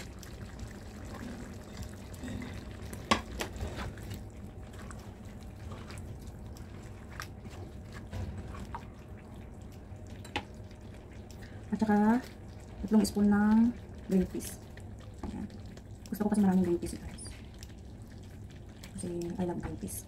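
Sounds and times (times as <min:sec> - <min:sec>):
stew simmering: 0:00.0 - 0:20.0
spatula stirring stew: 0:02.7 - 0:10.5.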